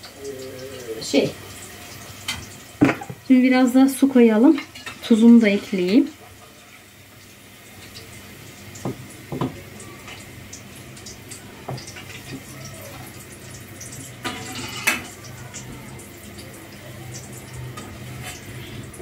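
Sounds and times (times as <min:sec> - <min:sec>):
tap water running into container: 0:04.2 - 0:19.0.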